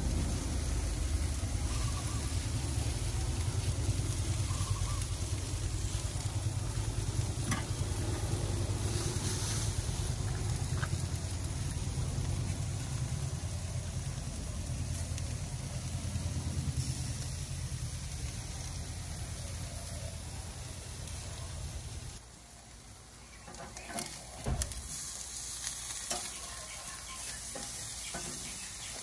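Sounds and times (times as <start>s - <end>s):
helicopter rotor rumble: 0.0s - 21.6s.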